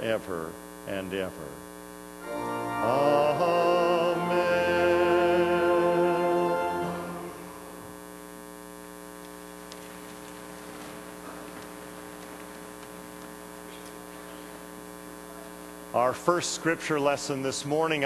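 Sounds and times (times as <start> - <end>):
electrical mains hum: 0.0 - 18.0
held musical chord: 2.2 - 7.9.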